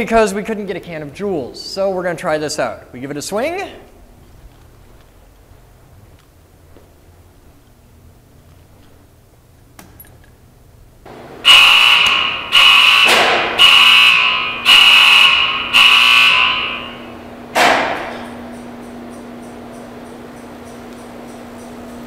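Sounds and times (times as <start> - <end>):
steady low hum: 0.0 - 22.0
loud warning alarm beeps: 11.4 - 17.2
sharp electrical bang: 13.0 - 14.5, 17.5 - 18.3.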